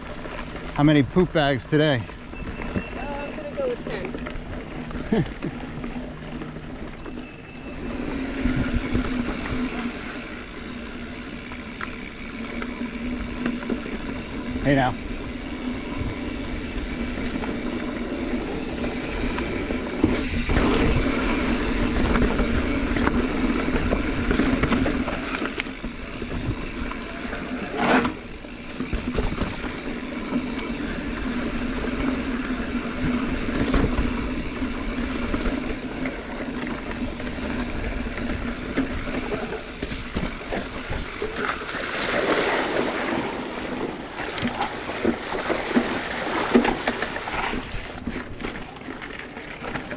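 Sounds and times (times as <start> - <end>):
bike tires rolling on trail: 0.0 - 49.9
bike knocking over bumps: 21.8 - 41.8.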